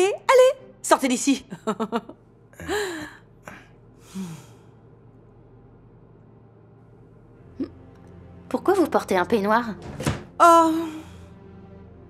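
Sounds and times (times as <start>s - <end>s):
woman sighing: 2.6s - 4.6s.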